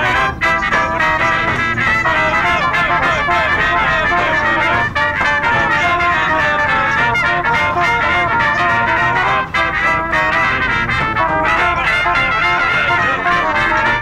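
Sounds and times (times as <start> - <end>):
brass music melody: 0.0 - 14.0.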